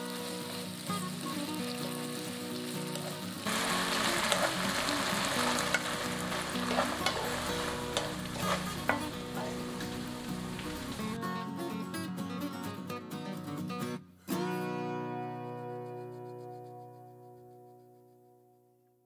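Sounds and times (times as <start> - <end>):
food sizzling in a wok: 0.0 - 11.2.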